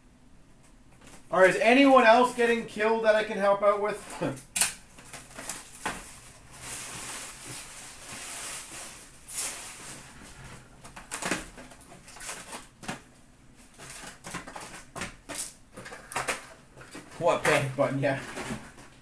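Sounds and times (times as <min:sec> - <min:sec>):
cardboard boxes rustling: 0:05.0 - 0:13.0, 0:13.6 - 0:19.0.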